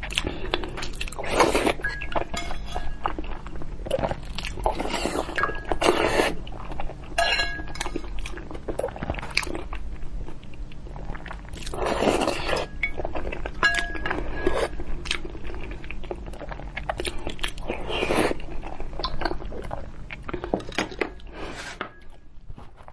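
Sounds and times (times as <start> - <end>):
chewing: 0.0 - 21.4
utensils clinking on stone bowl: 1.8 - 3.2, 7.2 - 8.2, 12.6 - 14.6.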